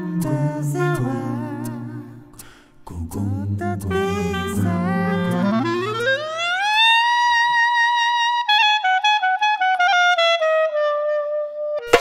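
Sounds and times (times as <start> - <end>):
solo wind instrument melody: 0.0 - 2.3, 3.7 - 12.0.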